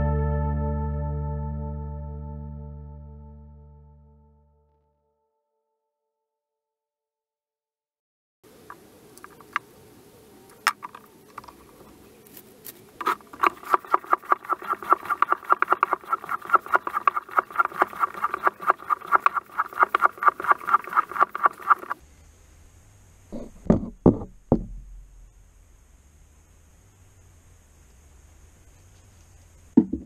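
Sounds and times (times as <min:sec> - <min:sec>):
floor pump strokes: 0:13.0 - 0:22.0.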